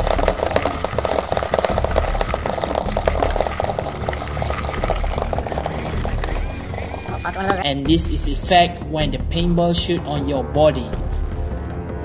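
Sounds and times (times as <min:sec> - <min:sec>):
paintballs rattling in plastic loader: 0:00.0 - 0:07.2.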